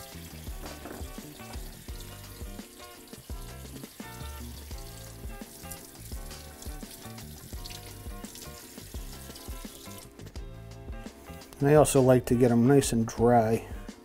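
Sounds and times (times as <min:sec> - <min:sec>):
faucet water splashing: 0:00.0 - 0:10.4
background music with a beat: 0:00.0 - 0:12.5, 0:13.2 - 0:14.0.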